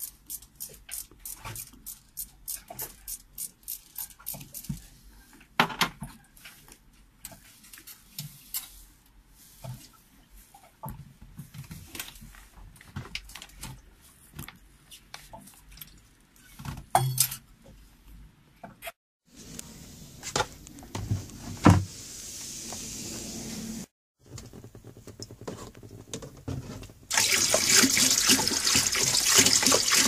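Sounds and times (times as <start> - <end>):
steady hiss: 19.3 - 23.9.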